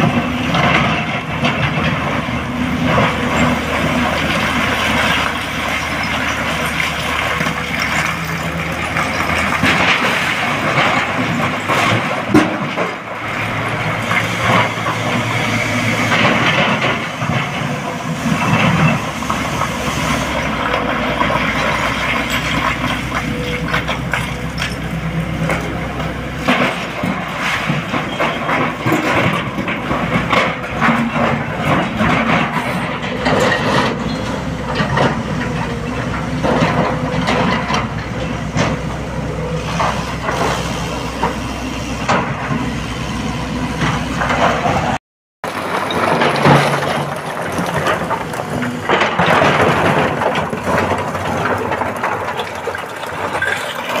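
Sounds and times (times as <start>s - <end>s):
excavator diesel engine under load: 0.0s - 54.0s.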